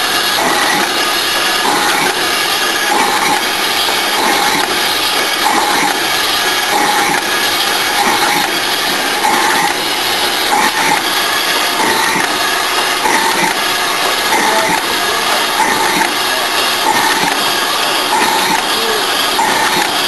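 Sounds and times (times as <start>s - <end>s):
machine clattering and humming: 0.0s - 20.0s.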